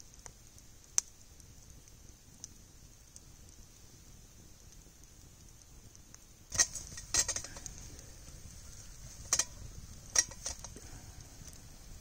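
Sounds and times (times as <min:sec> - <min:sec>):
faint steady hiss: 0:00.0 - 0:12.0
sharp clicks and clinks: 0:06.5 - 0:07.8, 0:09.2 - 0:10.8.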